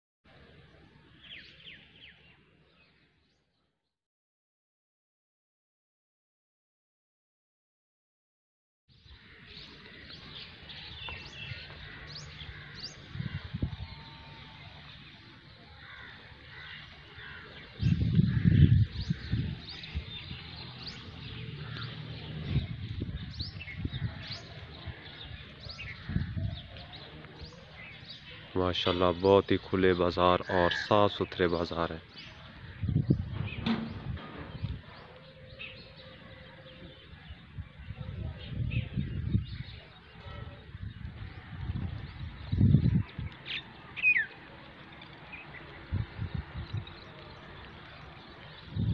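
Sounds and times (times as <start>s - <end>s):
birds chirping: 8.9s - 48.9s
steady outdoor hiss: 9.0s - 48.9s
microphone rumble: 17.8s - 20.7s, 21.6s - 27.5s, 32.5s - 43.3s
low thuds: 32.9s - 35.0s
bird chirps: 42.2s - 46.0s.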